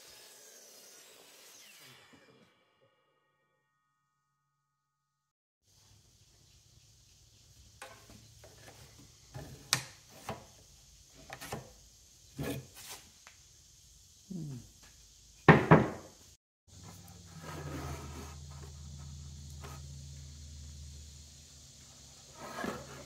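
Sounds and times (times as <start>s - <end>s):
wood scraping: 16.8s - 19.8s, 22.3s - 23.0s.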